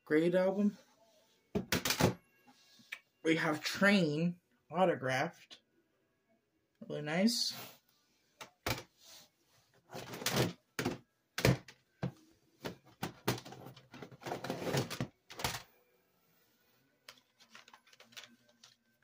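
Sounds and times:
plastic cases clacking: 10.0s - 15.7s.

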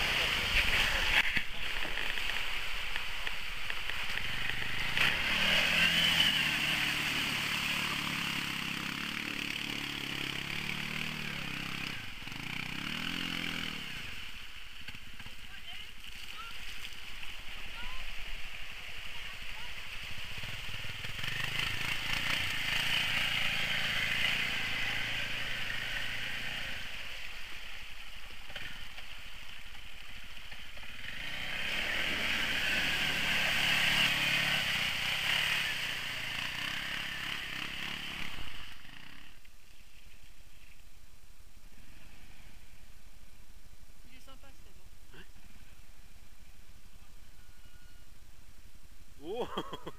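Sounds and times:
quad engines revving: 0.0s - 2.6s, 3.7s - 16.3s, 18.0s - 27.0s, 30.6s - 39.5s
water and mud splashing: 14.0s - 22.6s.

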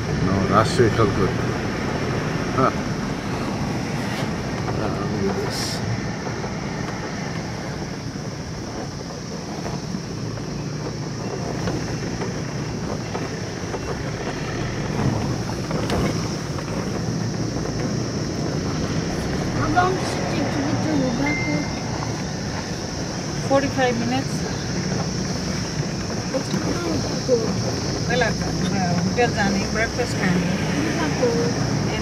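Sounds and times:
vehicle engine and road noise: 0.0s - 32.0s.

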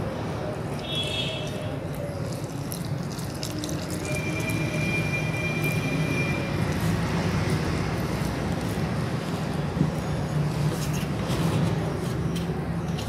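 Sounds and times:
milk pouring: 1.9s - 8.1s.

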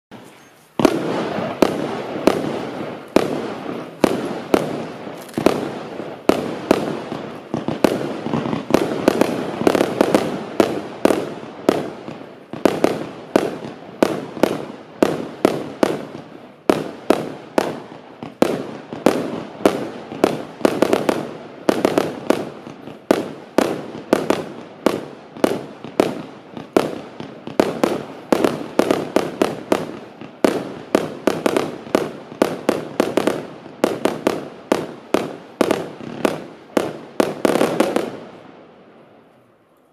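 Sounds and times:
firework hiss: 0.2s - 18.4s
firework cake popping: 0.2s - 38.2s.

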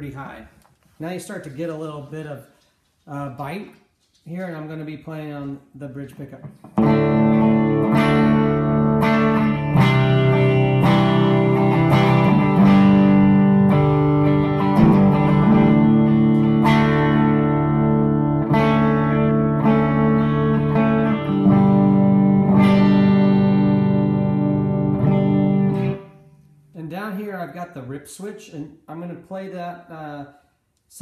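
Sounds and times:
overdriven electric guitar: 6.4s - 26.6s.

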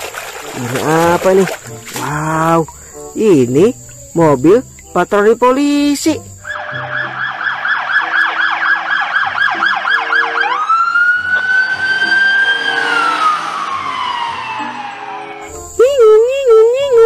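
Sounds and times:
police siren: 6.4s - 15.6s.

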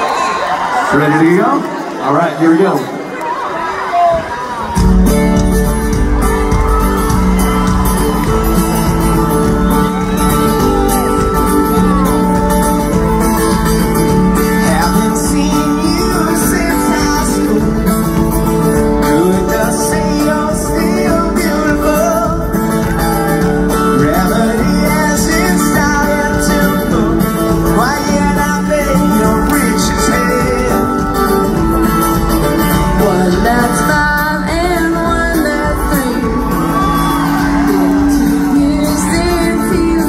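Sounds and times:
drums: 3.8s - 40.0s
acoustic guitar: 4.1s - 40.0s
man and girl singing duet: 32.9s - 40.0s.

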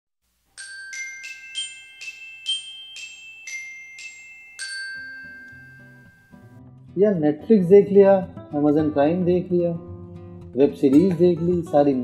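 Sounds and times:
chiming bell-like jingle: 0.6s - 6.6s.

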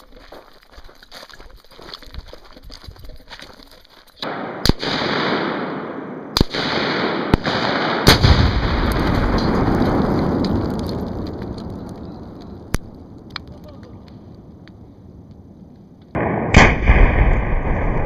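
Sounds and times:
rifle shots: 4.2s - 10.4s, 16.2s - 18.0s
explosion with deep boom: 6.5s - 13.3s, 16.1s - 18.0s.

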